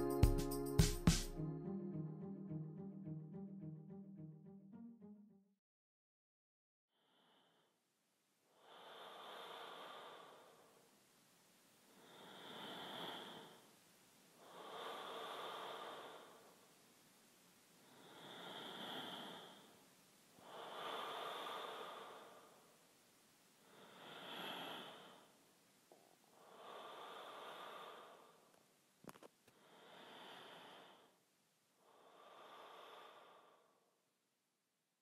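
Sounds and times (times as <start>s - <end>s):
soft breathing: 8.5s - 10.9s, 11.9s - 16.8s, 17.8s - 22.8s, 23.6s - 28.7s, 29.5s - 31.2s, 31.8s - 34.0s.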